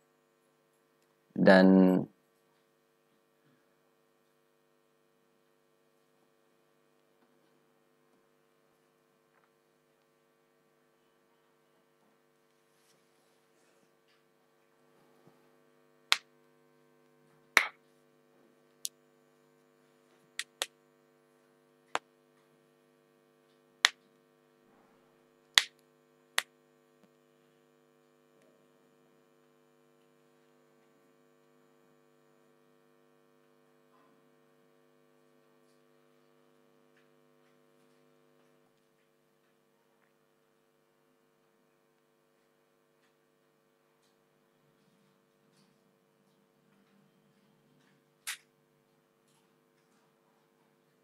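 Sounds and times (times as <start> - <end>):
low electrical hum: 0.0 - 51.0
sharp isolated clicks: 20.4 - 20.7, 48.2 - 48.5.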